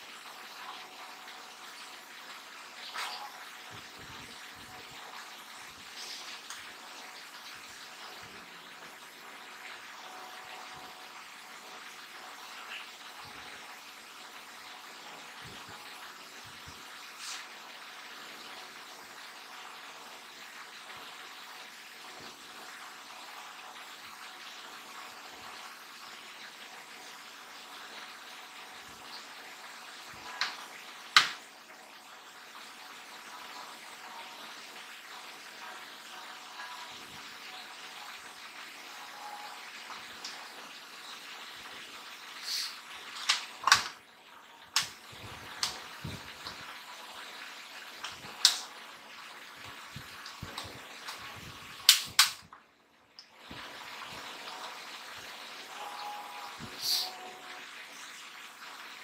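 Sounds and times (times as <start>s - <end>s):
steady hiss: 0.0s - 43.9s, 53.5s - 59.0s
wires rustling and clicking: 42.5s - 44.0s, 48.0s - 48.7s.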